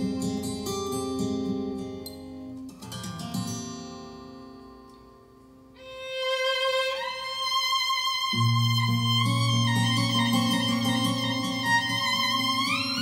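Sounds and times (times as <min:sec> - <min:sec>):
guitar: 0:00.0 - 0:13.0
violin: 0:05.8 - 0:13.0.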